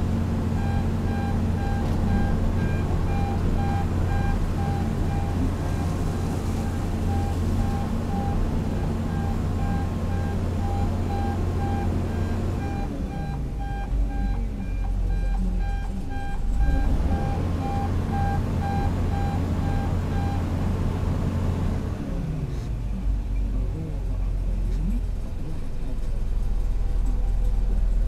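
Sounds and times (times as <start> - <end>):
diesel engines rumbling: 0.0 - 28.0
machine warning beeps: 0.6 - 20.5.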